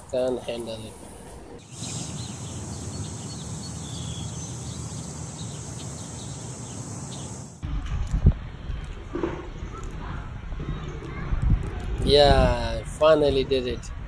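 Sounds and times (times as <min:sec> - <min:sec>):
steady outdoor noise: 0:00.0 - 0:14.0
small birds chirping: 0:00.1 - 0:07.6.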